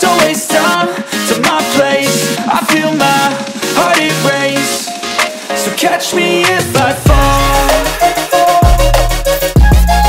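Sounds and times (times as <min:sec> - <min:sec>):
electronic pop music: 0:00.0 - 0:10.0.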